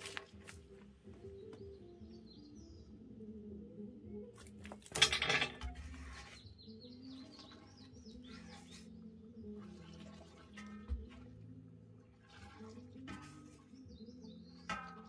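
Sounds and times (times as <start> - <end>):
birds chirping: 1.1 - 3.0, 6.2 - 9.5, 13.6 - 14.8
iron tools clattering on stove: 4.9 - 6.0.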